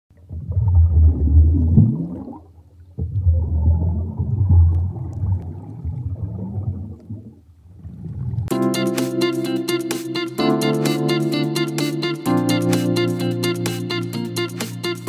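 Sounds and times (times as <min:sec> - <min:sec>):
rising bubbles: 0:00.1 - 0:08.5
underwater rumbling gurgle: 0:00.1 - 0:08.5.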